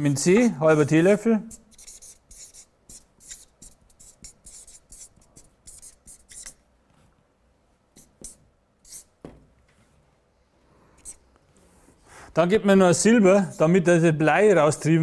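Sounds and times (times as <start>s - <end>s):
marker pen writing on paper: 0.8s - 6.6s, 7.9s - 9.2s, 11.0s - 11.2s.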